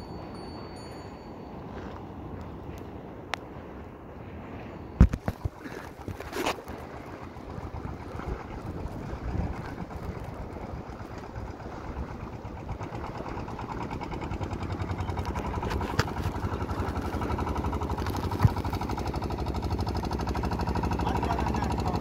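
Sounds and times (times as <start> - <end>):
boat engine thudding: 4.5 - 22.0.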